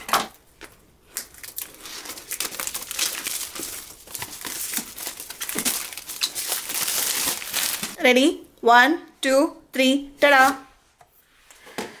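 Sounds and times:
plastic shrink wrap crinkling: 0.7 - 8.0.

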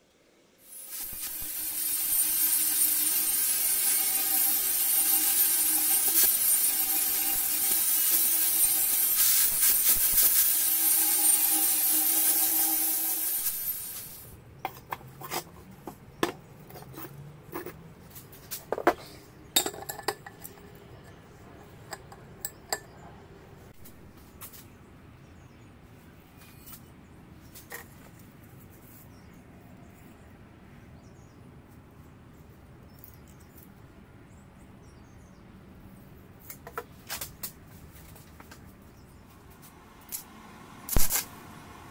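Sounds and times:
angle grinder grinding steel: 0.6 - 15.4
metal parts clinking: 0.9 - 15.5.

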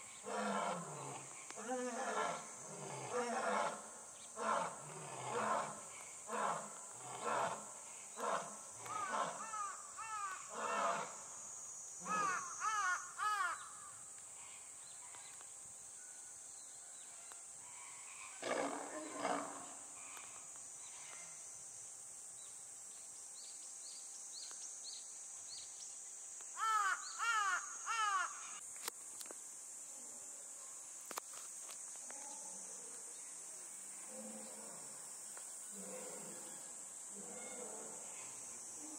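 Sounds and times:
high insect drone: 0.0 - 38.9
crows cawing: 8.9 - 10.8, 12.1 - 13.9, 26.6 - 28.5
lioness snarl: 18.3 - 19.7.

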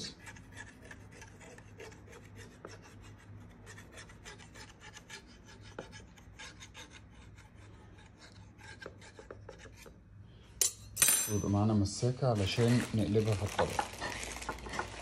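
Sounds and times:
knife scraping a ceramic ramekin: 0.0 - 10.0.

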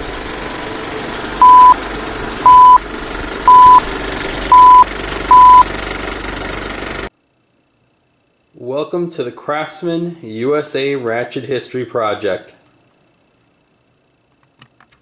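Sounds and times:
short beeps: 1.4 - 1.8, 2.5 - 2.8, 3.5 - 3.8, 4.5 - 5.6.

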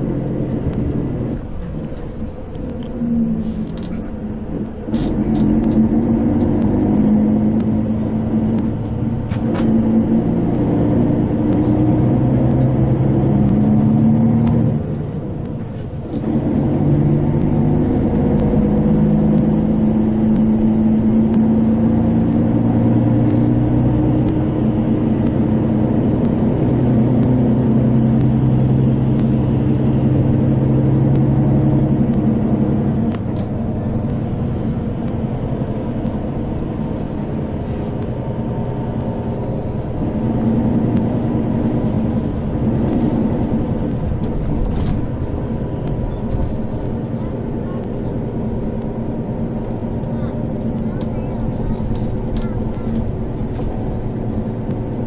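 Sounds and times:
vehicle engine and tyre drone: 0.0 - 55.0.

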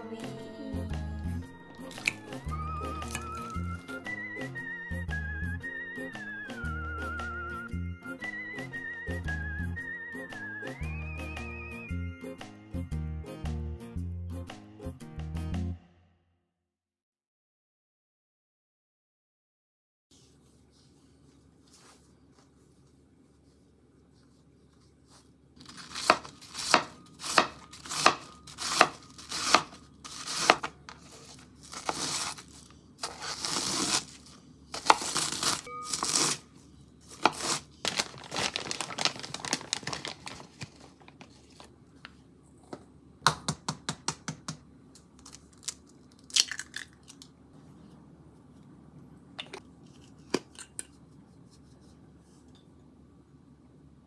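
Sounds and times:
food packaging crinkling and tearing: 1.8 - 2.3, 2.9 - 3.8, 25.6 - 36.4, 37.1 - 41.8, 45.2 - 47.2
flour bag rustling: 1.9 - 3.9, 20.3 - 41.8.

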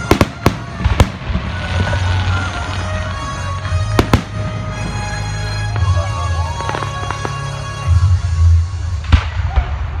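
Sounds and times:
fireworks bursting: 0.0 - 10.0
music playing: 0.0 - 10.0.

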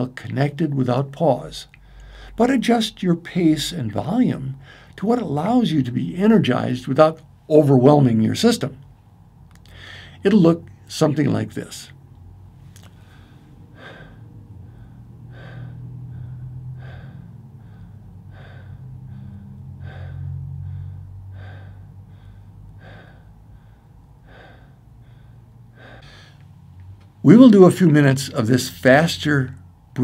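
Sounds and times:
man breathing through mouth: 1.7 - 2.4, 4.6 - 5.0, 9.6 - 10.2, 12.5 - 27.2.

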